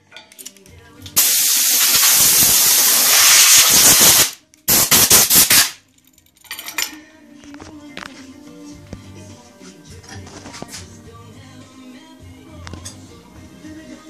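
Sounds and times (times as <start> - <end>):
compressed air blasting: 1.2 - 5.8.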